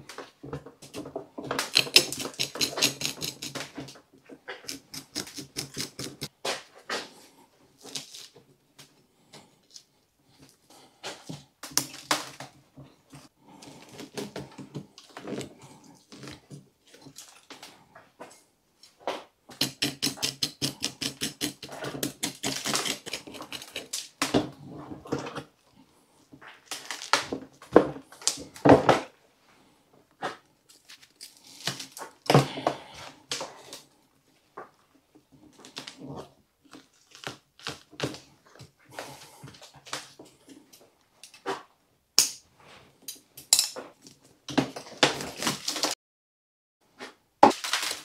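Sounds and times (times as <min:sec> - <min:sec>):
rake scratching through roots: 0:01.7 - 0:03.7, 0:04.5 - 0:06.3, 0:19.6 - 0:24.1.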